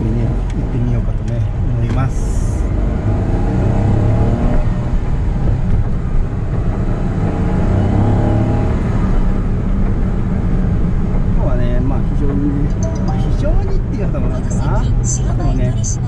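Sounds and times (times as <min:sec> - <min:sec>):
car engine accelerating: 0:00.0 - 0:16.0
road noise: 0:00.0 - 0:16.0.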